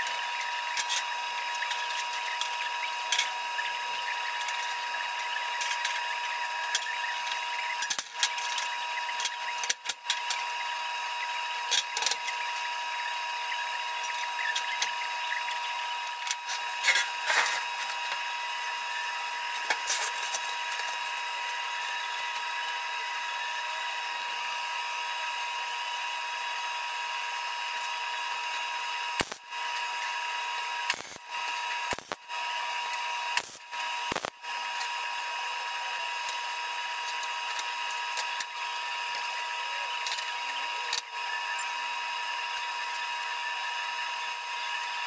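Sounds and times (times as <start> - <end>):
high-pitched machine whine: 0.0 - 45.0.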